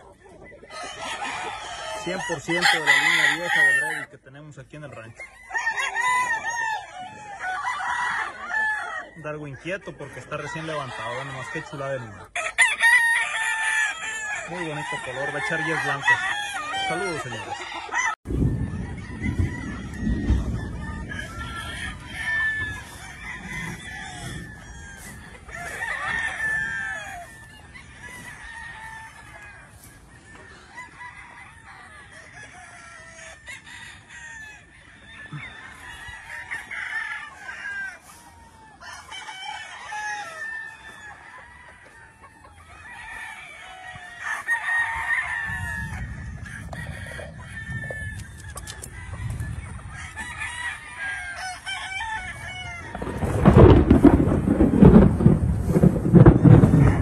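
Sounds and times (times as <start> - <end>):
chickens clucking: 0.0 - 6.3, 7.8 - 12.5, 14.5 - 33.2, 40.8 - 44.5, 45.5 - 55.4
roosters crowing: 0.0 - 57.0.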